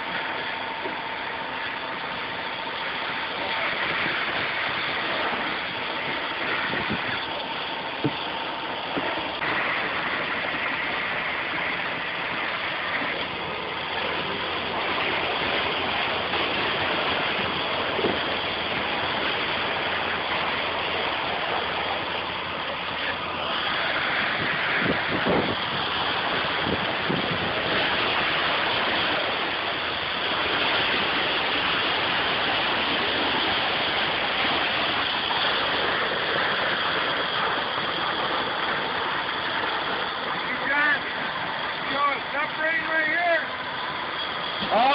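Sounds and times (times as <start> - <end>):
truck engine droning: 0.0 - 44.9.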